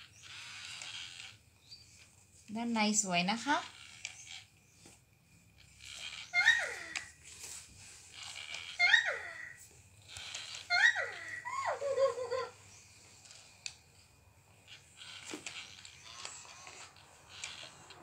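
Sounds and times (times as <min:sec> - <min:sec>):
toy monkey squeal and hoot: 0:05.8 - 0:07.2, 0:08.1 - 0:12.7.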